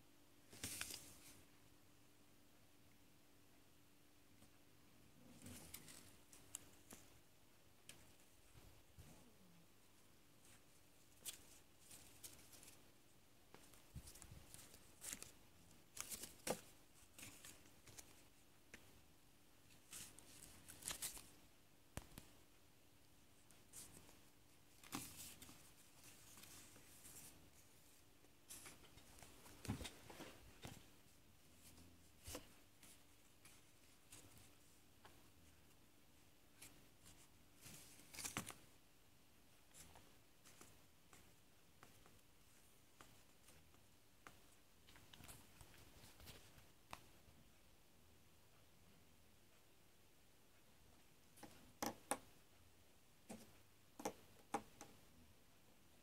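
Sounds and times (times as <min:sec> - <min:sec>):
paper and cardboard rustling: 0:00.5 - 0:01.4, 0:13.6 - 0:18.4, 0:23.6 - 0:30.8
markers tapping on wooden desk: 0:51.4 - 0:52.3, 0:53.3 - 0:55.0.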